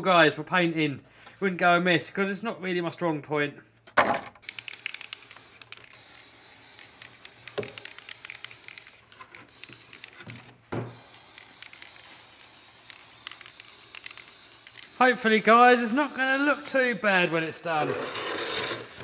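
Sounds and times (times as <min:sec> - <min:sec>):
spray paint can hissing: 0:04.4 - 0:16.8.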